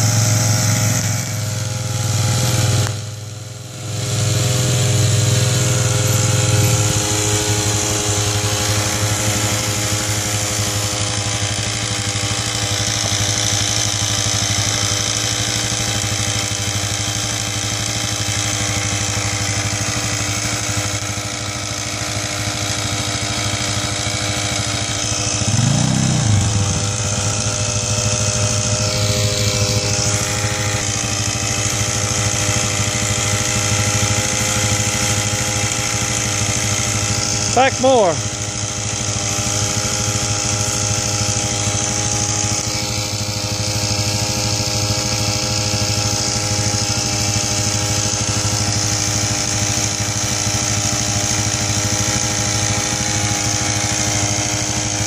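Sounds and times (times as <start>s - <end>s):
quad bike engine: 0.0s - 55.0s
spray pump running: 0.0s - 55.0s
strong low hum: 25.4s - 27.8s.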